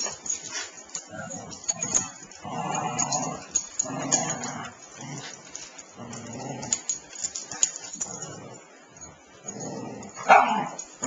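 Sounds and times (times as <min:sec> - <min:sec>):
dogs scuffling paws: 0:00.0 - 0:08.2.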